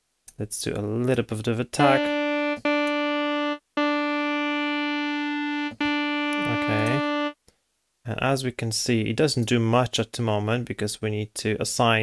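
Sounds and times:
synth lead held note: 1.8s - 7.4s.

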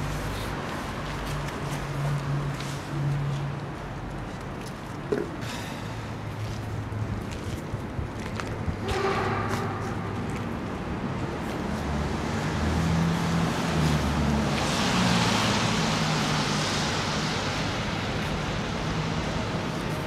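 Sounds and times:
car passing with tyre hiss: 5.4s - 7.0s, 11.0s - 20.0s.

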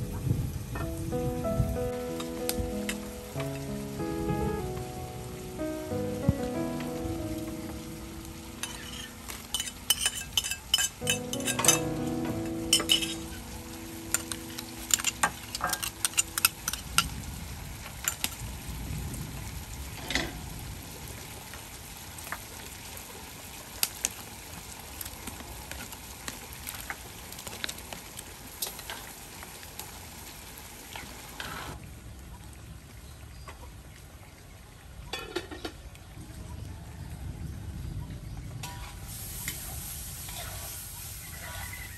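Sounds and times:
soup bubbling in a pot: 38.9s - 41.9s.

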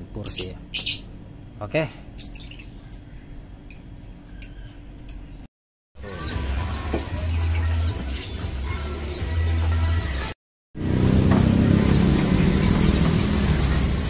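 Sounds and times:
small birds chirping: 0.0s - 1.2s, 2.0s - 10.4s, 11.0s - 14.0s.

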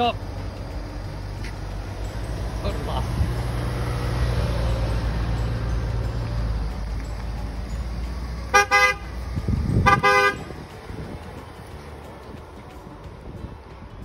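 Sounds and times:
car engine humming: 0.0s - 14.0s
car horn tooting: 8.5s - 10.5s.

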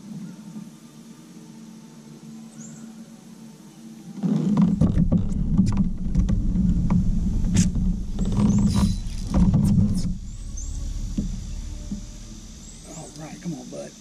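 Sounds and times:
kayak pedal drive rumbling: 4.2s - 14.0s.

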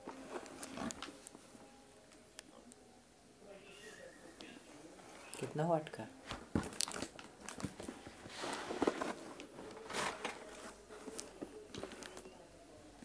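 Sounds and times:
plastic film and cardboard rustling: 6.2s - 12.3s.

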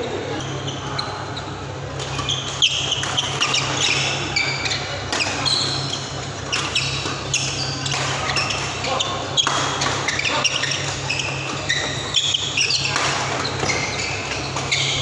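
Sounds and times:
shoes squeaking on court: 0.0s - 15.0s
racket hitting shuttlecock: 5.0s - 15.0s.

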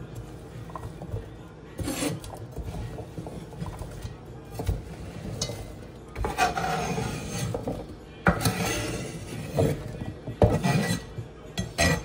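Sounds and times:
knife scraping wooden cutting board: 1.8s - 3.6s, 6.2s - 12.0s.

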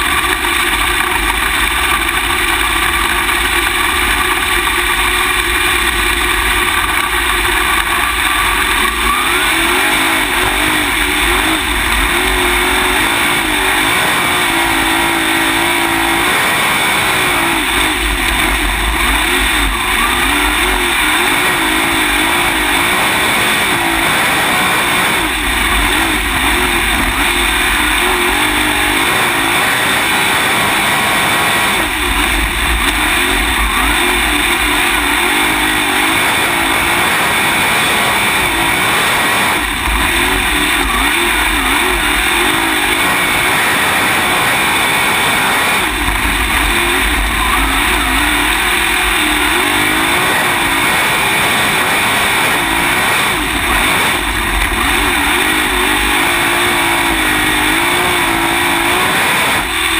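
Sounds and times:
race car engine revving: 0.0s - 59.9s
low rumble: 31.8s - 35.6s.

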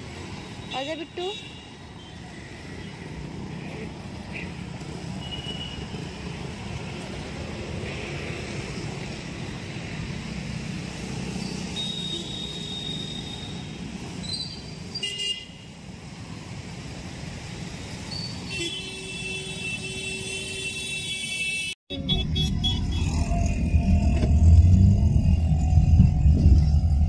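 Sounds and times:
road traffic rumble: 0.0s - 27.0s
vehicle horns tooting: 18.5s - 23.2s.

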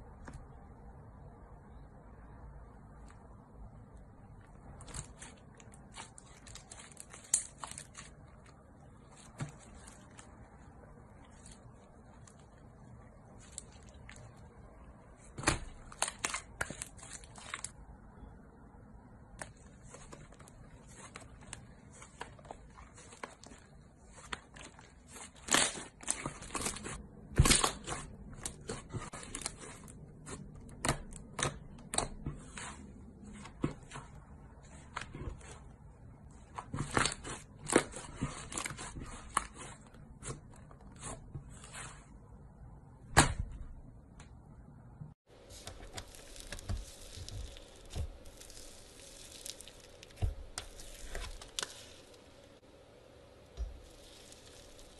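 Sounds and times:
slime popping and crackling: 45.5s - 52.3s, 53.6s - 54.9s.

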